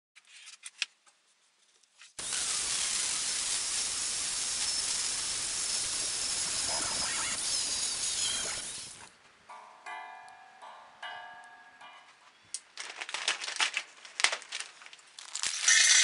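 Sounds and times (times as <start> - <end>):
angle grinder grinding steel: 2.2 - 9.1, 15.5 - 16.0.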